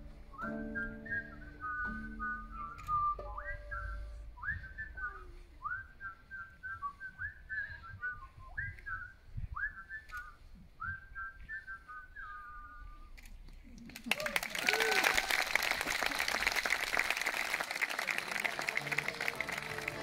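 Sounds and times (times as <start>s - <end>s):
faint low thumps: 0.0s - 11.7s
whistled tune in harmony: 0.2s - 12.9s.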